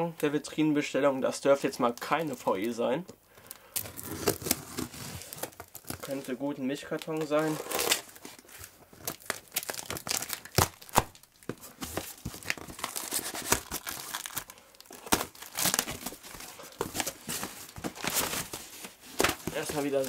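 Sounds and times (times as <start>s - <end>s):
tape and packing material tearing: 3.8s - 6.2s, 7.2s - 8.4s, 9.0s - 11.3s, 11.9s - 20.0s.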